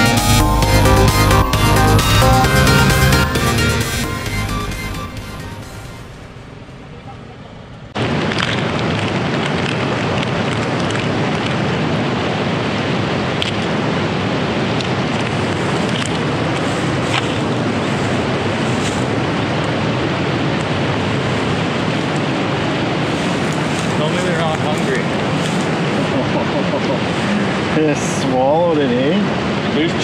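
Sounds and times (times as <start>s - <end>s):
wind buffeting microphone: 6.1s - 28.2s
fast-flowing river rushing: 8.0s - 30.0s.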